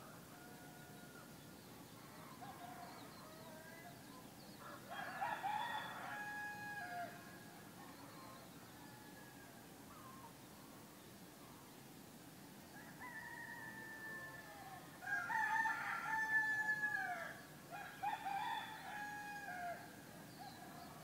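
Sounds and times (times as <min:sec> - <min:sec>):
roosters crowing: 0:04.6 - 0:07.6, 0:12.8 - 0:21.0.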